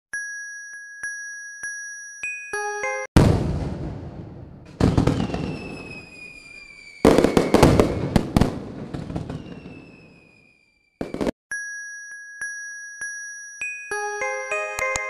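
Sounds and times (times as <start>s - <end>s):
fireworks bursting and crackling: 3.2s - 11.4s
whistle falling in pitch: 5.2s - 7.8s.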